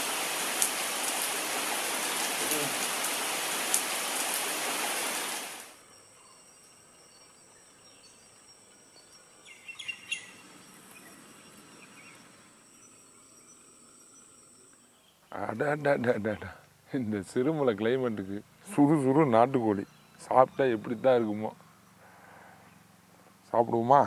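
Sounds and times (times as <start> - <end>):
heavy rain on leaves: 0.0 - 5.8
high insect drone: 0.0 - 16.5
bird chirps: 5.9 - 15.9, 19.6 - 23.0.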